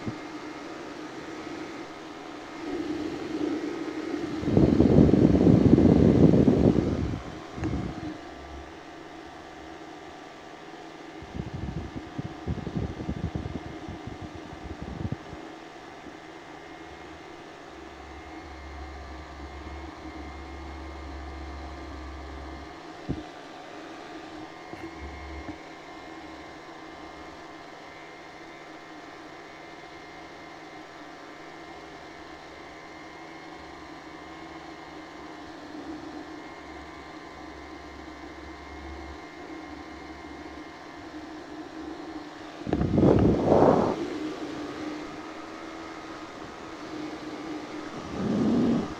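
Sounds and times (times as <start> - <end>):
paramotor engine drone: 0.0 - 27.4, 31.6 - 48.9
wind rumbling on microphone: 2.6 - 8.2, 11.2 - 15.4, 42.6 - 45.1, 47.4 - 48.9.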